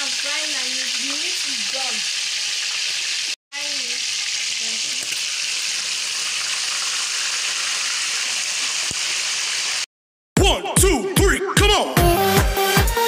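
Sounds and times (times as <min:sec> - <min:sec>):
chicken deep-frying in oil: 0:00.0 - 0:09.9
electronic dance music: 0:10.4 - 0:13.0.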